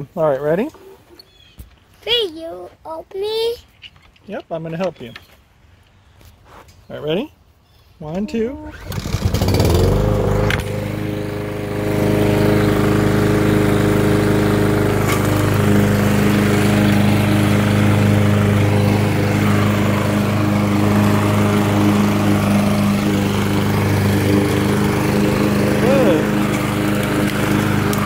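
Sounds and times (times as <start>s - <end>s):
lawn mower engine running: 8.6s - 28.0s.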